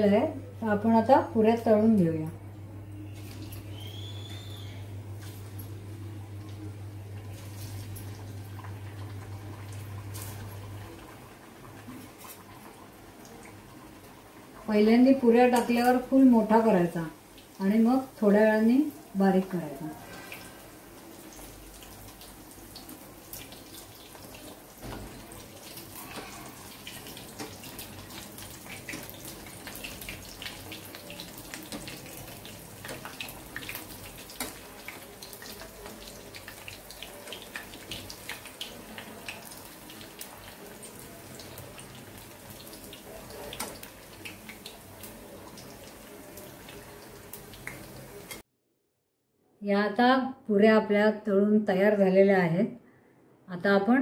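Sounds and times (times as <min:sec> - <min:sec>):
deep-frying in hot oil sizzling: 0:00.1 - 0:48.4.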